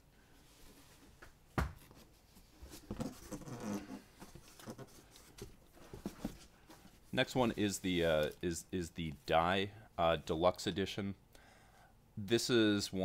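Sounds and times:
books rustling and shuffling: 0:00.4 - 0:08.4.

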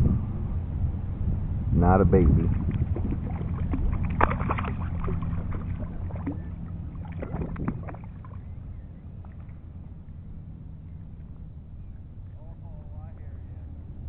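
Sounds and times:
low steady rumble: 0:00.0 - 0:14.0
water lapping: 0:02.2 - 0:10.0
fish splashing in water: 0:02.4 - 0:09.6.

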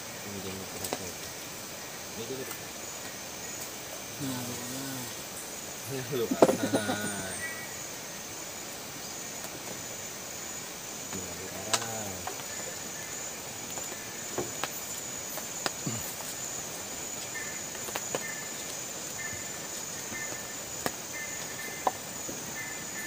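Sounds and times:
insect chirping: 0:00.0 - 0:23.0
insects buzzing: 0:00.0 - 0:23.0
man's voice: 0:05.9 - 0:07.4.

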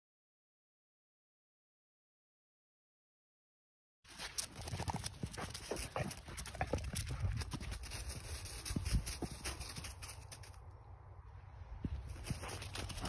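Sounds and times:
footsteps crunching on gravel: 0:04.1 - 0:10.6, 0:11.9 - 0:13.0
steady low rumble: 0:05.5 - 0:13.0.

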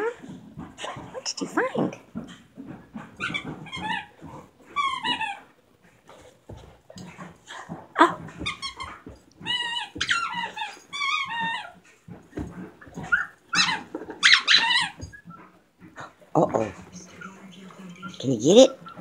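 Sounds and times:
squeaky toy squeaking: 0:03.2 - 0:04.1, 0:04.7 - 0:05.4, 0:08.4 - 0:11.8, 0:13.0 - 0:15.4.

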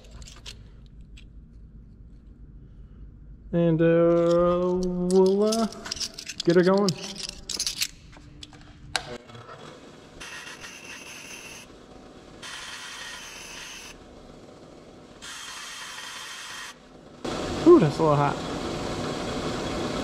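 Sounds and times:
metal being ground: 0:04.1 - 0:08.1, 0:10.2 - 0:11.7, 0:12.4 - 0:14.0.

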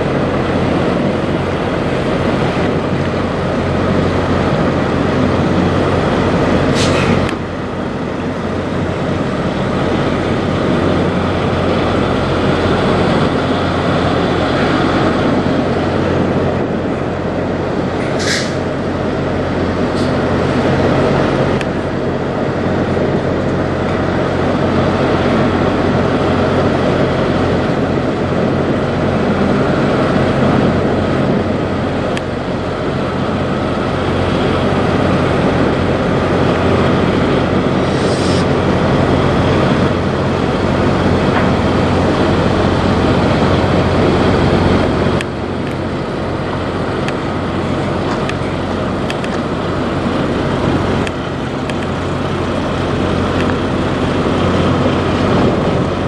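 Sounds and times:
diesel engine rumbling: 0:00.0 - 0:56.0
short hiss: 0:18.1 - 0:18.6, 0:37.9 - 0:38.5.

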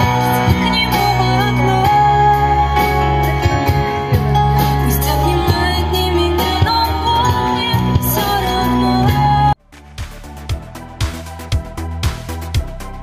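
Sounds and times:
woman singing: 0:00.0 - 0:09.6
bass guitar: 0:00.0 - 0:13.0
drums: 0:00.0 - 0:13.0
keyboard: 0:00.0 - 0:13.0.

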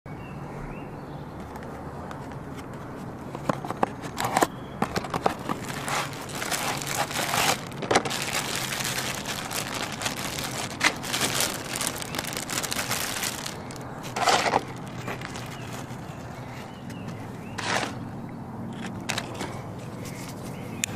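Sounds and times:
plastic packet crinkling: 0:04.8 - 0:16.4.

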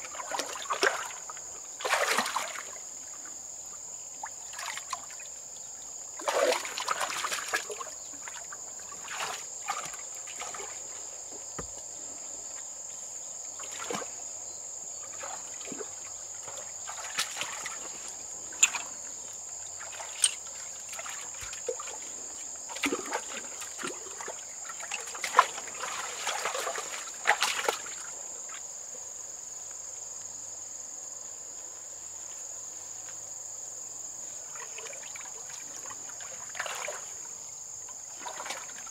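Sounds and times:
water slaps: 0:00.1 - 0:02.8, 0:06.2 - 0:10.9, 0:13.6 - 0:14.2, 0:15.1 - 0:19.0, 0:22.7 - 0:28.0, 0:35.8 - 0:37.2, 0:38.2 - 0:38.9
shallow water splashing: 0:00.1 - 0:03.2, 0:06.2 - 0:11.0, 0:13.5 - 0:14.3, 0:15.0 - 0:28.1, 0:34.6 - 0:37.2, 0:38.0 - 0:38.9.

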